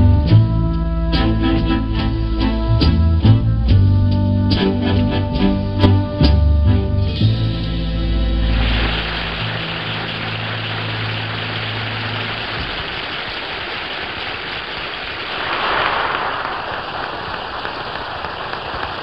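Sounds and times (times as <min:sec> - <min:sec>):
orchestra held chord: 0:06.6 - 0:12.8
audience applauding: 0:08.4 - 0:19.0.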